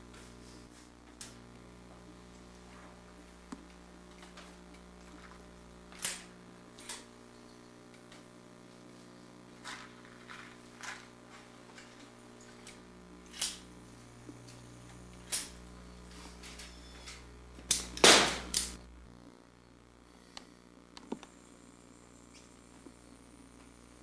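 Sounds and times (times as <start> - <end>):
submachine gun shots: 18.0 - 18.5.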